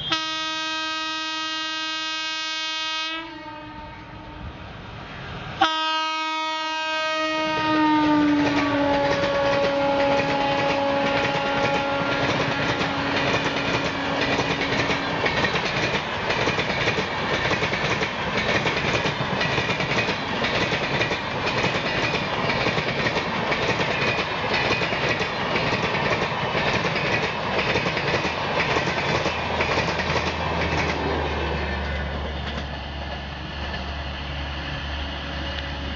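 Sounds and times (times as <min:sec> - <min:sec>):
train wheels clattering on rails: 0:07.4 - 0:34.0.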